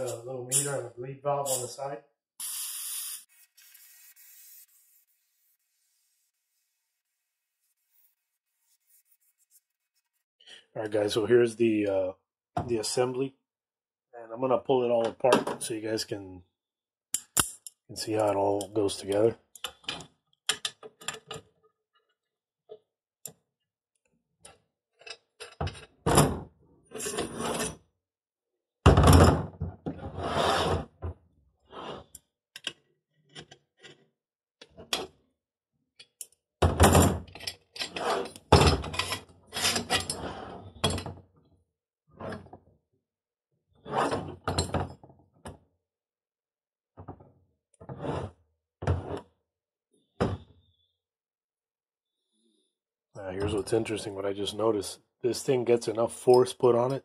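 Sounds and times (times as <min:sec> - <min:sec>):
tools scraping and clicking: 0:01.5 - 0:01.8.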